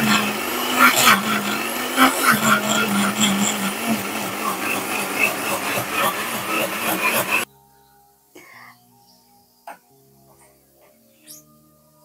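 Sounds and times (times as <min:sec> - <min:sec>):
blender motor grinding: 0:00.0 - 0:07.5.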